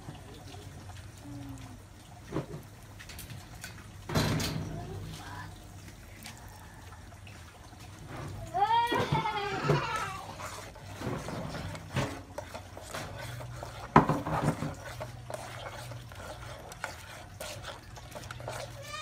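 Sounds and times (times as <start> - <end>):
metal ladle scraping a pot: 9.0 - 19.0.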